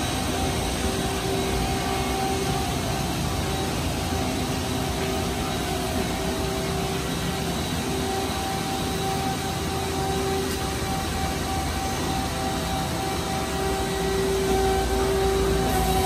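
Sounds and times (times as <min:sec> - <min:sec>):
faint whine: 0:00.0 - 0:16.0
lathe humming and whirring: 0:00.0 - 0:16.0.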